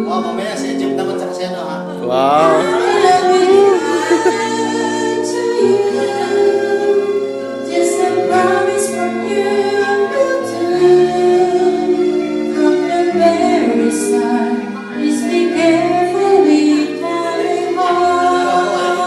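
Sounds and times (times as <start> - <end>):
instrumental accompaniment with bass: 0.8 - 19.0
woman singing into a microphone: 2.3 - 19.0.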